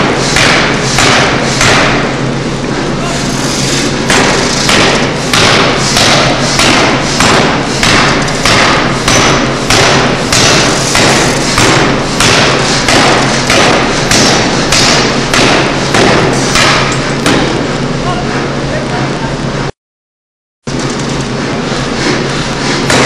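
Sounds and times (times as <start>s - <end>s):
forging hammer striking metal: 0.0s - 2.2s, 3.9s - 17.7s, 22.7s - 23.0s
steady low hum: 0.0s - 19.8s, 20.7s - 23.0s.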